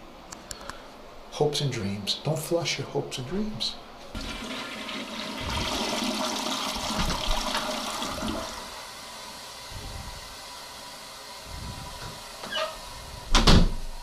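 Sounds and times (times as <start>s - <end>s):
toilet flushing: 4.1s - 9.7s
tank refilling with water: 4.2s - 9.5s.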